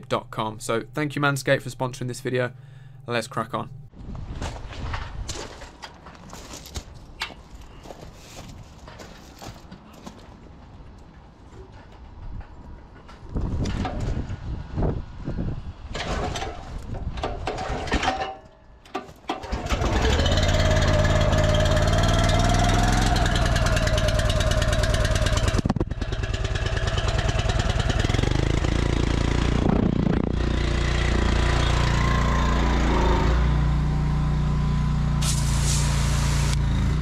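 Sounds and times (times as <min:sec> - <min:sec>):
pressure washer petrol engine running: 0:19.4 - 0:37.0.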